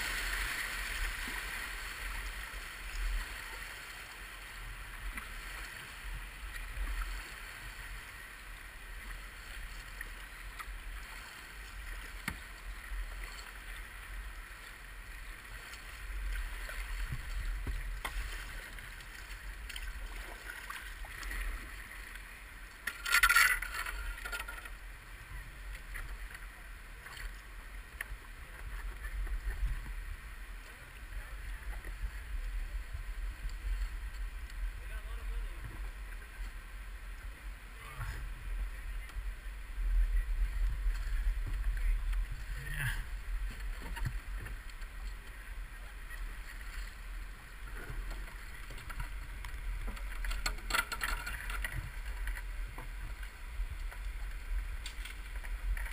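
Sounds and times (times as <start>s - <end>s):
river water splashing around boat: 0.0s - 55.9s
wind rumble on microphone: 23.6s - 55.9s.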